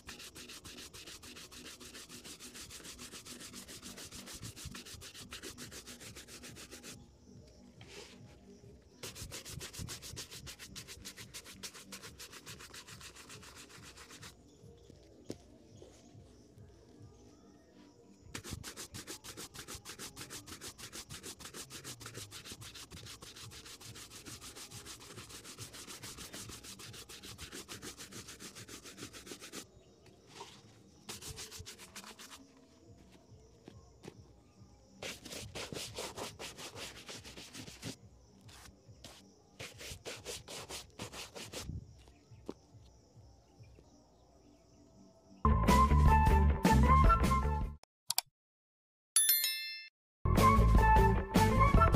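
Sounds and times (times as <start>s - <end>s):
shoe brush scrubbing leather: 0.0s - 7.0s, 9.0s - 14.4s, 18.3s - 29.6s, 30.4s - 32.6s, 35.0s - 41.8s.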